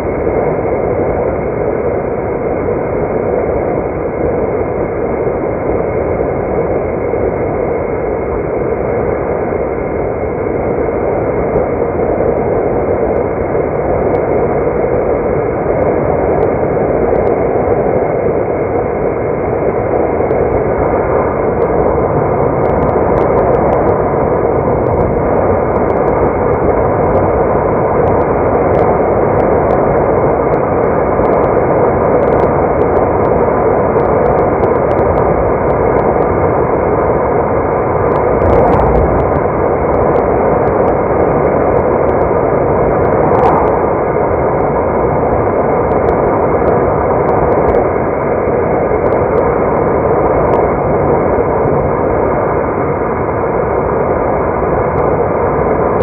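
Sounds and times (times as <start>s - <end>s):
car driving on road: 38.1s - 41.0s.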